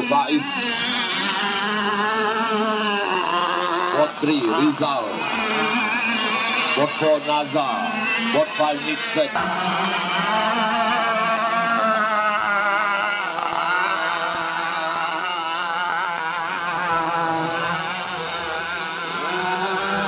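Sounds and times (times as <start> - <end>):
racing boat engines at high revs: 0.0 - 20.0.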